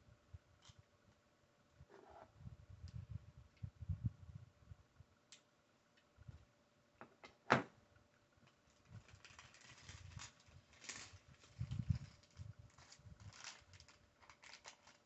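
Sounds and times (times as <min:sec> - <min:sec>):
plastic pieces rustling and clattering: 0:08.6 - 0:15.0.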